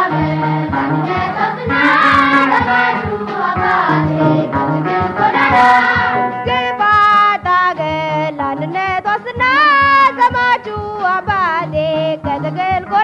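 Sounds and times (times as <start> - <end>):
group singing slow song: 0.0 - 6.8
instrumental backing: 0.0 - 13.0.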